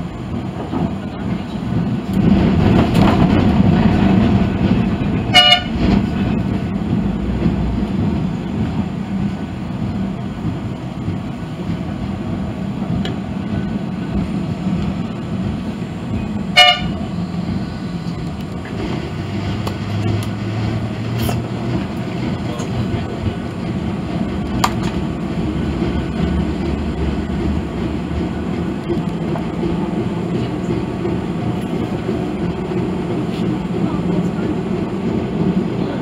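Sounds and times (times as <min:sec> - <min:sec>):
tram wheels and motors rumbling: 0:00.0 - 0:36.0
tram horn toots: 0:05.2 - 0:06.1, 0:16.5 - 0:17.2.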